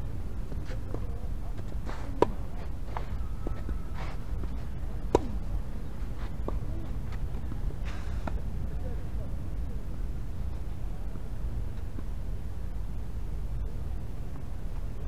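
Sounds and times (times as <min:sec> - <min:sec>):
low outdoor rumble: 0:00.0 - 0:15.0
tennis ball being struck: 0:01.6 - 0:05.7.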